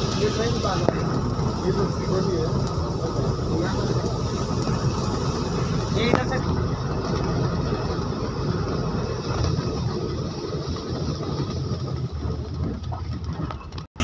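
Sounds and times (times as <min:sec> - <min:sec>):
vehicle engine and tyres rumble: 0:00.0 - 0:14.0.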